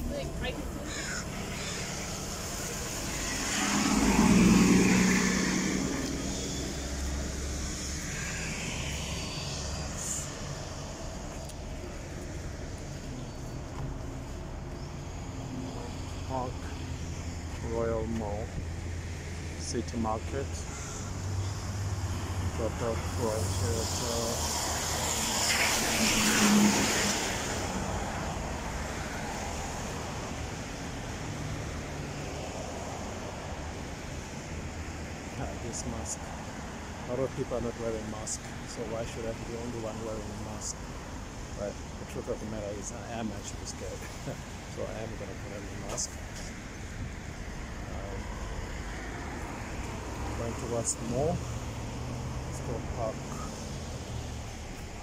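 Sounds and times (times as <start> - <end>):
bus passing by: 0.0 - 38.0
low traffic hum: 0.0 - 55.0.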